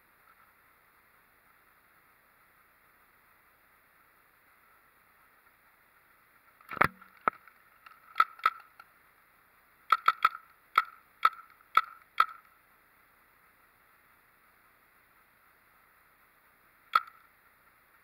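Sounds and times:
paintball marker popping: 6.7 - 8.8, 9.9 - 12.5.

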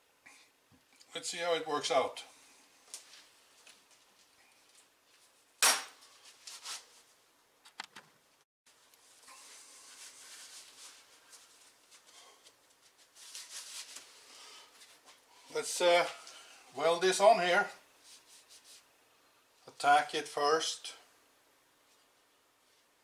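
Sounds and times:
faint rustling: 8.7 - 16.5.

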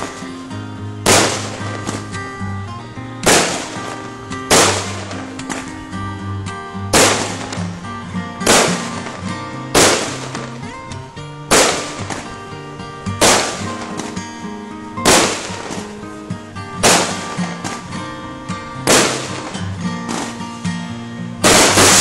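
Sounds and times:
music: 0.0 - 22.0
firework shells bursting: 1.0 - 2.2, 3.2 - 5.9, 6.9 - 7.8, 8.4 - 14.3, 15.0 - 16.2, 16.8 - 18.0, 18.7 - 20.6, 21.4 - 22.0.

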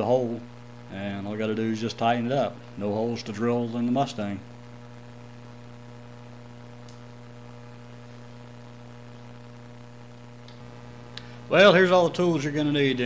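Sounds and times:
background hiss: 0.0 - 13.0
electrical mains hum: 0.0 - 13.0
faint tick: 6.8 - 7.0, 10.4 - 11.3.

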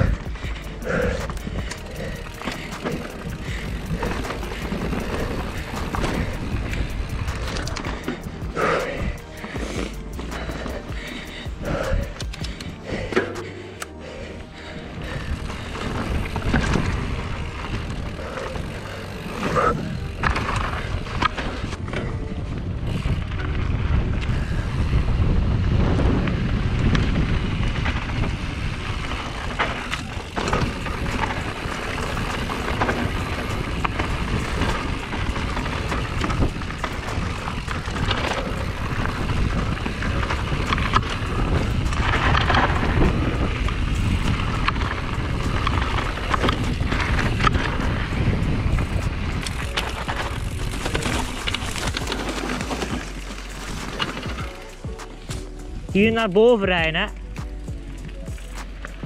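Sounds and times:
wind buffeting microphone: 0.0 - 13.1, 14.6 - 55.0
tyre noise on dirt: 0.0 - 13.4, 15.0 - 59.0
bike knocks and rattles: 0.0 - 13.5, 25.6 - 59.0.

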